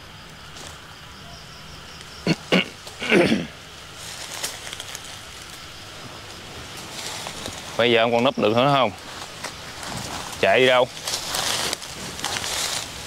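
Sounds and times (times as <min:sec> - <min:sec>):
footsteps in dry leaves: 0:03.8 - 0:13.0
twigs snapping: 0:04.1 - 0:05.7, 0:09.0 - 0:13.0.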